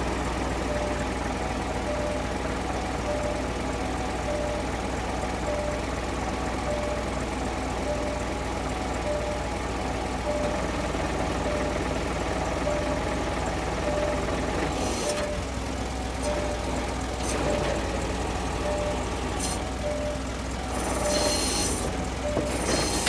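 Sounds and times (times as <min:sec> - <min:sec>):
truck diesel engine idling: 0:00.0 - 0:23.0
short beeps: 0:05.4 - 0:05.9, 0:06.7 - 0:07.1, 0:18.6 - 0:19.1, 0:19.8 - 0:20.2, 0:21.0 - 0:23.0.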